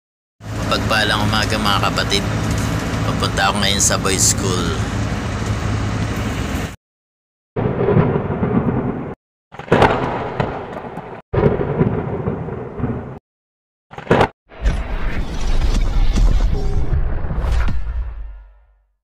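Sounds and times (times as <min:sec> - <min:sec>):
rumbling thunderclaps: 0:07.6 - 0:13.2.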